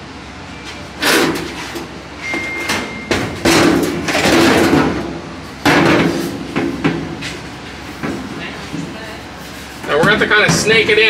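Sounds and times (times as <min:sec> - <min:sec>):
sheet metal panel clanging: 0:02.3 - 0:05.1.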